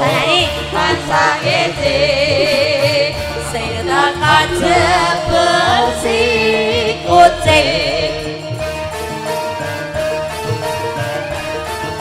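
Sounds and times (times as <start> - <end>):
woman singing ornamented vocal: 0.0 - 8.6
gamelan ensemble: 0.0 - 12.0.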